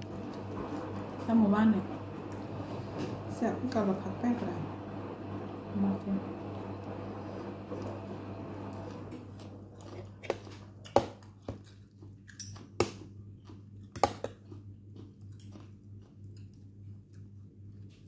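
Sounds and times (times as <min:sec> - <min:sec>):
steady low hum: 0:00.0 - 0:18.0
person chewing food: 0:08.8 - 0:18.0.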